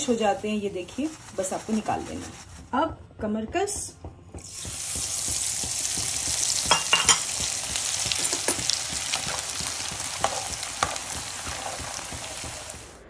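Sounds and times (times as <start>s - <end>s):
frying sizzle in hot oil: 0.0s - 2.8s, 4.4s - 13.0s.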